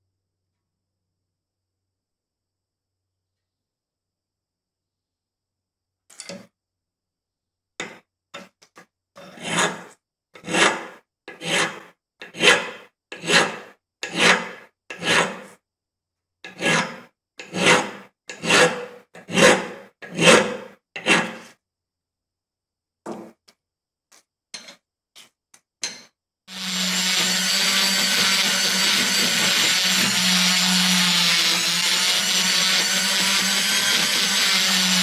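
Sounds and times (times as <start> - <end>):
file rasping on metal: 9.2 - 15.6, 16.5 - 21.6, 26.5 - 35.0.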